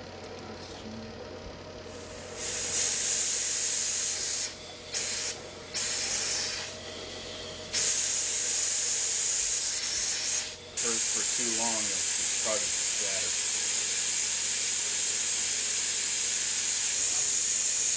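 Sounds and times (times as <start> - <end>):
machine hum: 0.0 - 17.9
bursts of air hiss: 1.9 - 6.8, 7.7 - 17.9.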